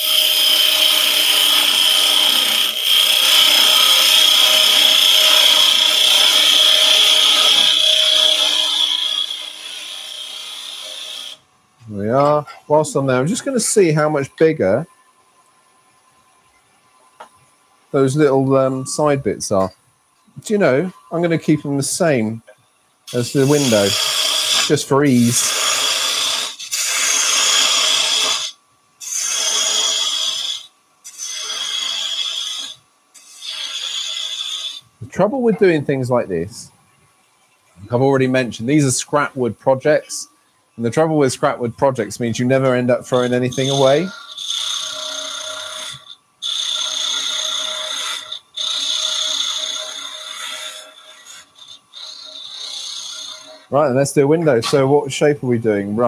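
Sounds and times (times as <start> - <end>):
parting tool cutting wood on lathe: 0.0 - 11.4, 23.1 - 35.6, 41.5 - 53.8.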